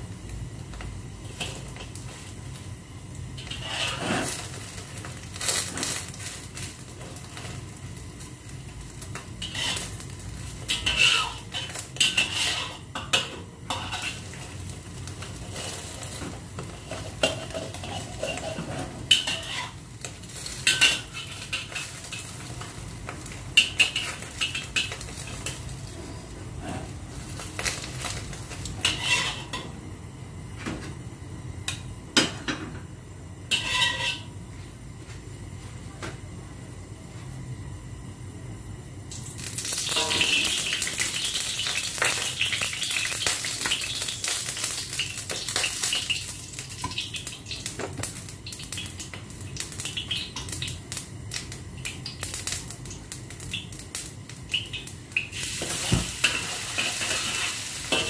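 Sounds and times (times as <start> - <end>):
egg sizzling: 0.0 - 29.6, 39.1 - 58.0
spatula scraping a wok: 3.4 - 7.5, 9.1 - 14.6, 15.2 - 22.6, 23.6 - 29.7, 33.5 - 34.3, 55.5 - 58.0.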